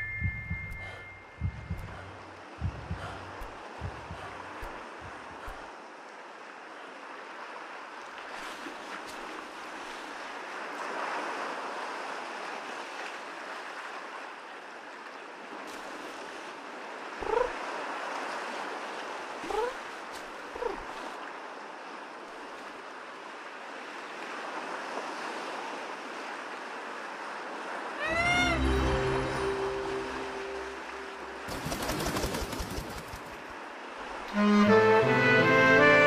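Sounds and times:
waves washing on shore: 0.7s - 34.4s.

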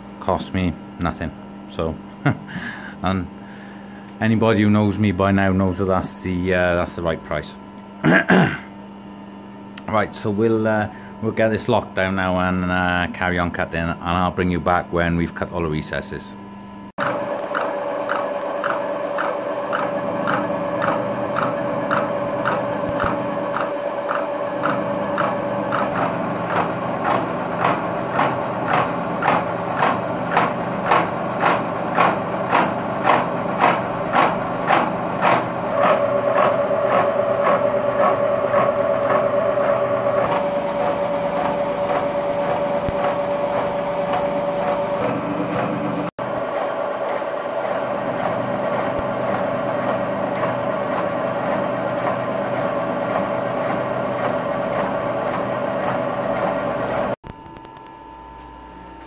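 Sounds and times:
milling machine cutting metal: 17.0s - 57.6s.

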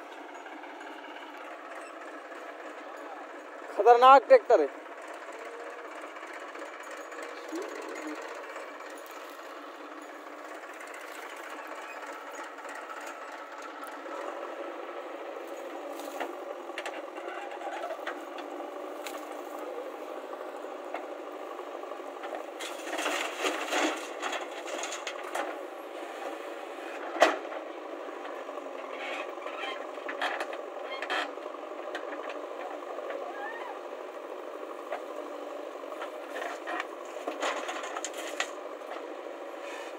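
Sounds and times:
diesel engines running: 0.0s - 39.9s
digger bucket clanks and knocks: 22.2s - 25.6s, 36.0s - 38.6s.

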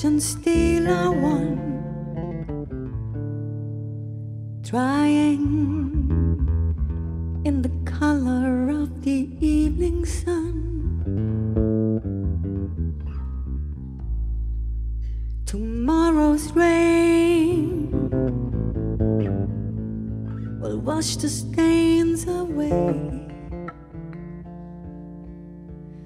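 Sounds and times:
woman singing: 0.0s - 2.2s, 4.6s - 6.4s, 7.5s - 11.0s, 15.4s - 18.3s, 20.6s - 23.6s
electric bass guitar: 0.0s - 26.0s
guitar: 0.0s - 26.0s.

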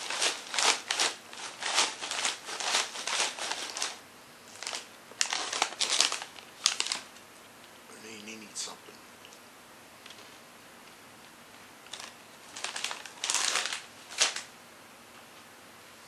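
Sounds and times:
plastic snack bag crinkling: 0.0s - 7.2s, 11.8s - 14.5s.

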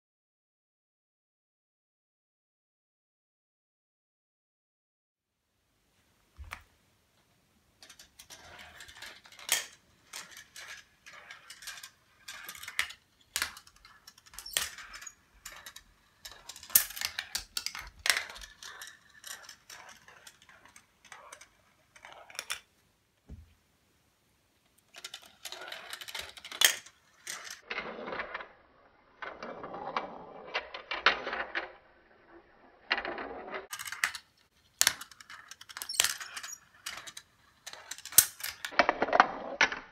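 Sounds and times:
marbles clicking and clattering: 7.8s - 22.7s, 25.0s - 28.4s, 33.7s - 39.8s
marbles rolling on track: 7.8s - 22.7s, 24.9s - 39.9s.

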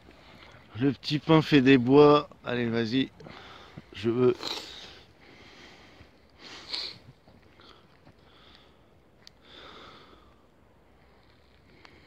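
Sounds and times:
man sniffing through nose: 6.4s - 7.1s.

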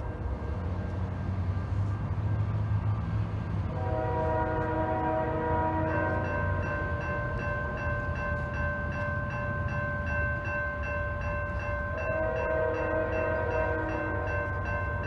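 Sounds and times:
crossing bell ringing: 0.0s - 15.0s
train rumbling: 0.0s - 15.0s
train horn: 3.6s - 6.6s, 12.0s - 14.7s.

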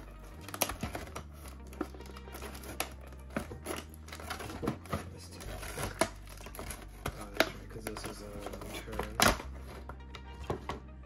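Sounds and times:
plastic tray crackling: 0.0s - 10.8s
sharp plastic snaps: 9.0s - 9.6s.

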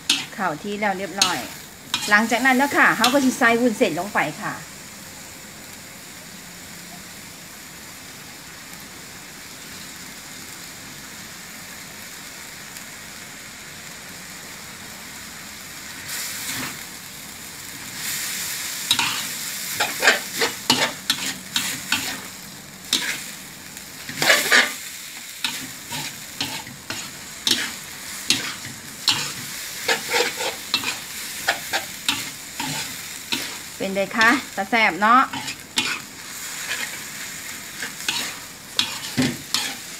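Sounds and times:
metal spatula scraping a wok: 0.0s - 3.5s, 16.1s - 16.8s, 18.8s - 22.3s, 22.9s - 23.4s, 24.0s - 39.9s
food sizzling in hot oil: 0.0s - 39.9s.

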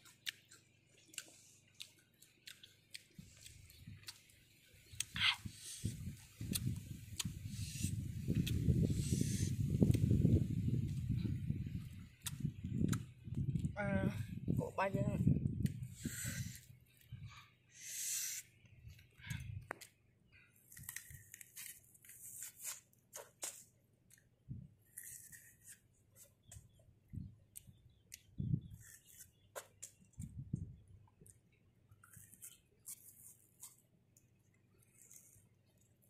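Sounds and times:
wet chewing: 0.0s - 7.4s, 8.3s - 8.7s, 11.8s - 13.7s, 31.0s - 36.0s
crunching raw fruit: 0.0s - 7.5s, 8.2s - 13.8s, 18.4s - 36.0s
fruit peel tearing: 15.6s - 16.8s, 20.6s - 26.7s, 27.6s - 30.2s, 31.2s - 36.0s.

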